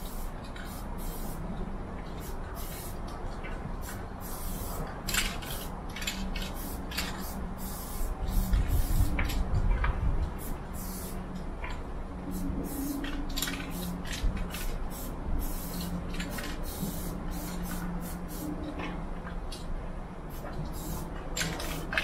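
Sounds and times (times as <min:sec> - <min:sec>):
spray paint can hissing: 0:00.0 - 0:01.4, 0:02.2 - 0:03.0, 0:03.8 - 0:09.2, 0:10.4 - 0:11.2, 0:12.3 - 0:18.5, 0:20.3 - 0:22.0.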